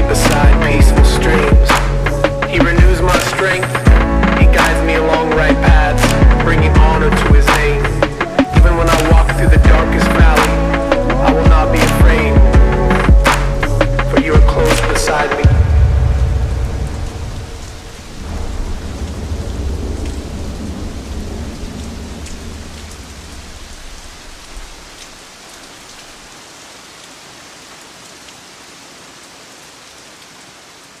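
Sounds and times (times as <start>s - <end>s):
rolling thunder: 0.0s - 24.7s
rain falling: 0.0s - 31.0s.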